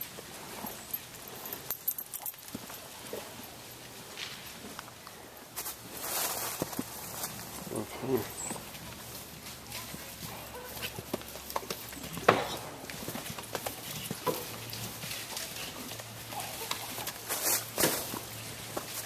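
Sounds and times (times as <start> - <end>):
horse hoofbeats on hard lane: 8.2 - 19.0.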